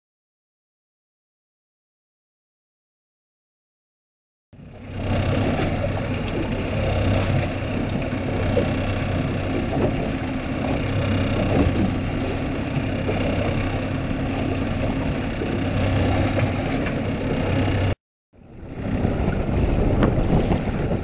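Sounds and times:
boat engine humming: 4.6s - 21.0s.

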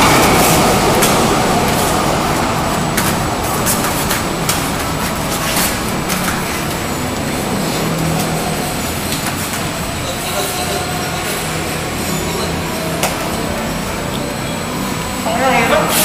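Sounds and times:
steady rushing noise: 0.0s - 16.0s.

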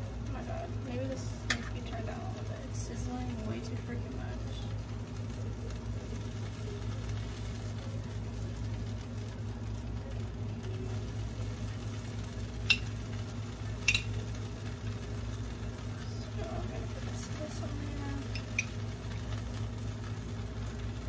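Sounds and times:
bread sizzling in a pan: 0.0s - 21.0s
glass jar being opened: 13.9s - 14.1s
metal spoon clicks: 13.9s - 14.1s.

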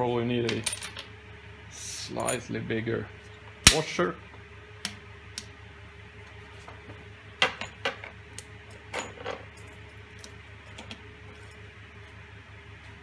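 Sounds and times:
faint steady hum: 0.0s - 13.0s
washers and nuts clinking: 8.9s - 9.8s.

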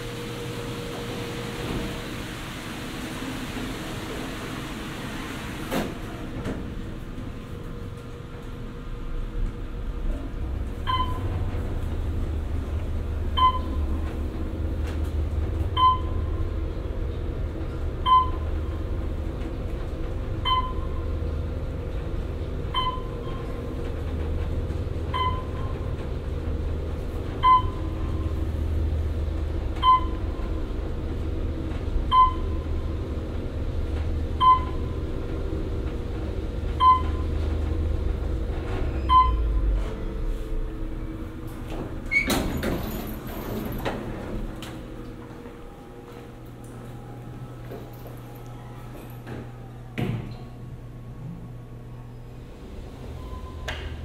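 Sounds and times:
elevator doors shutting: 0.0s - 54.0s
elevator low rumble: 0.0s - 54.0s
short beeps: 13.4s - 13.8s, 39.0s - 39.6s.

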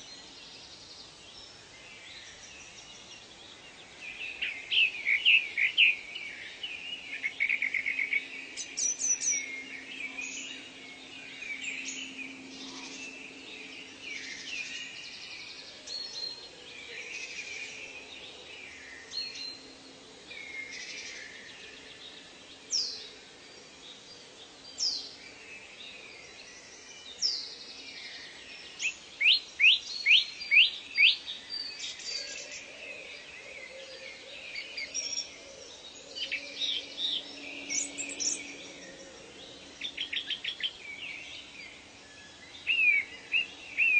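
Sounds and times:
birds chirping and whistling: 4.1s - 16.4s, 28.6s - 43.9s
faint low drone: 5.9s - 28.8s, 31.3s - 43.9s
downward-sweeping bird whistles: 42.6s - 43.9s.

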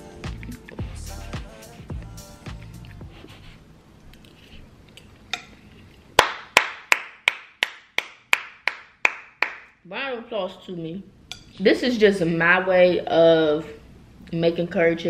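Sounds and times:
person clapping hands: 6.2s - 9.7s.

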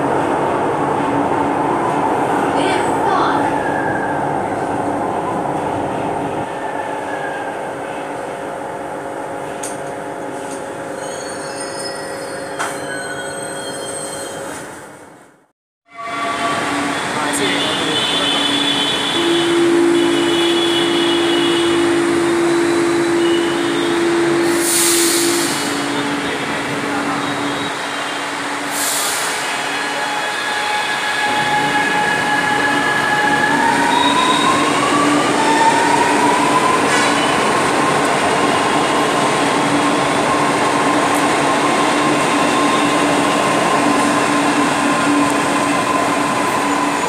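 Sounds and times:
train cars rumbling: 16.0s - 47.0s.

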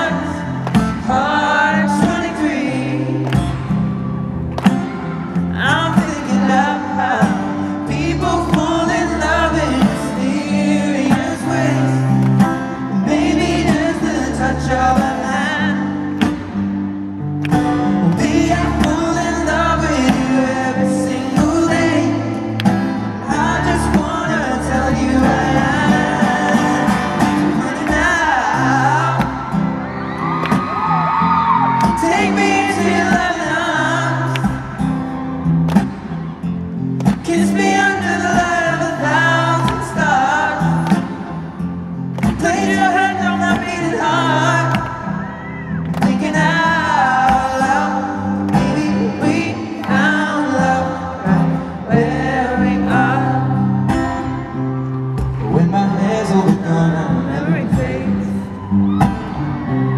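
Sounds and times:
man singing a slow ballad: 0.0s - 3.3s, 5.5s - 16.1s, 17.9s - 29.5s, 31.9s - 34.8s, 37.2s - 41.3s, 42.4s - 45.4s, 46.0s - 54.0s, 55.4s - 58.6s
strummed acoustic guitar: 0.0s - 59.9s.

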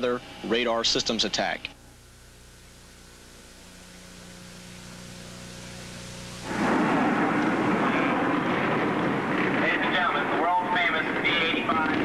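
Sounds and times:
jet aircraft roar: 6.3s - 12.0s.

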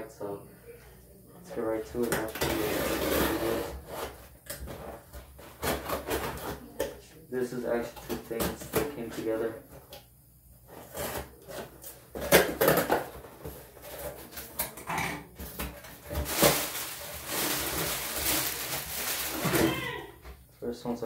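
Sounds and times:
cardboard box scraping and knocking: 2.4s - 4.2s
plastic packing material rustling: 15.4s - 20.1s.

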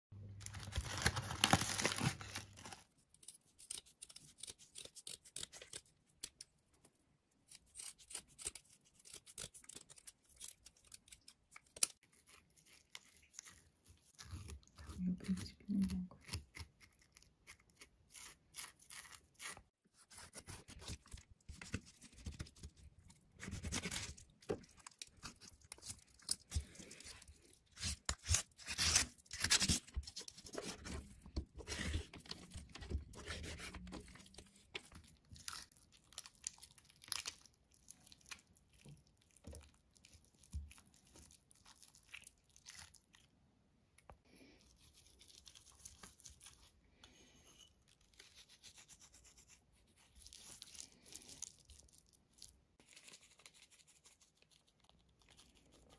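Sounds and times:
knife scraping fish scales: 3.1s - 6.4s, 7.5s - 14.6s, 25.1s - 34.4s.

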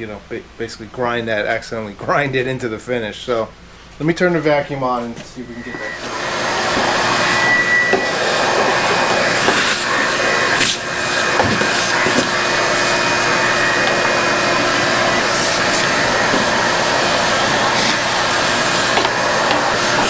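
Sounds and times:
shop vacuum running: 4.2s - 20.0s
vacuum nozzle whistle: 5.3s - 20.0s.

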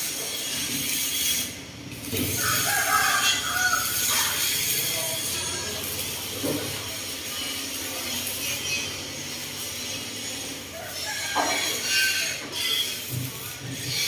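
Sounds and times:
cutting torch hissing: 0.0s - 10.8s.

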